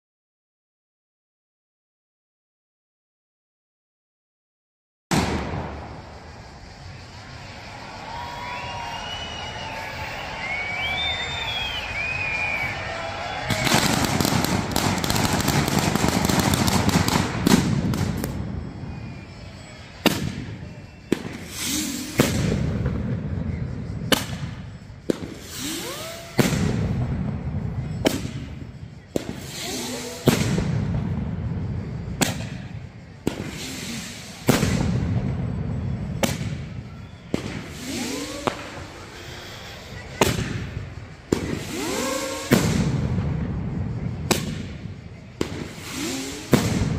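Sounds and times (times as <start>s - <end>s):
loud firework bangs: 5.1s - 8.0s, 12.8s - 46.9s
firecrackers crackling: 5.1s - 46.9s.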